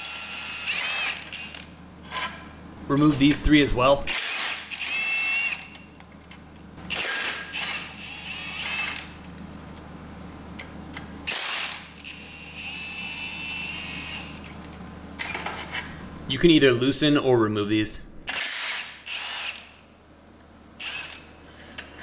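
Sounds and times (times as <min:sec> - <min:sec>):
impact wrench whining: 0:00.0 - 0:02.3, 0:04.1 - 0:05.8, 0:06.8 - 0:09.2, 0:11.3 - 0:14.5, 0:18.2 - 0:19.8, 0:20.8 - 0:21.3.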